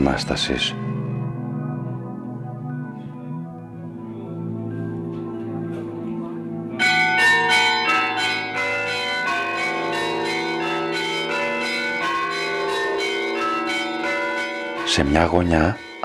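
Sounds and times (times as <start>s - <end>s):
church bells ringing: 0.0s - 16.0s.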